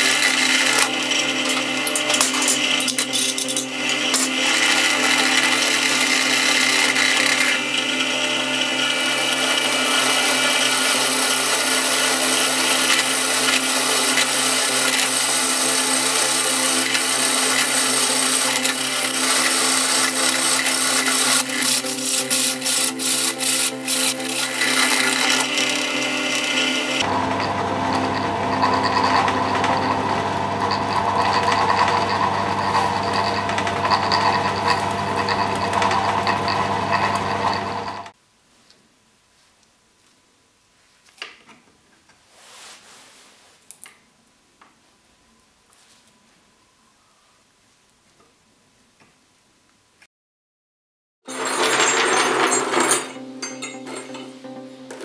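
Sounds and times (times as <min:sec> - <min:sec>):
drill bit grinding through steel: 0:00.0 - 0:38.2
drill press motor hum: 0:00.0 - 0:38.2.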